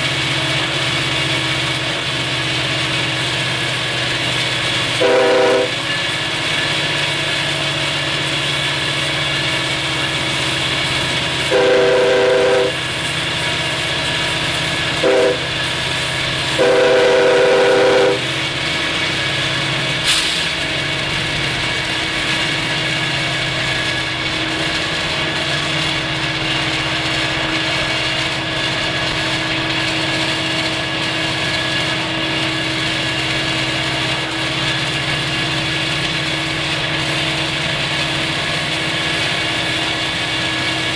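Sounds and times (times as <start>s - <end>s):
diesel locomotives rumbling: 0.0s - 40.9s
train air horn blasts: 5.0s - 5.9s, 11.4s - 12.9s, 15.0s - 15.6s, 16.5s - 18.4s.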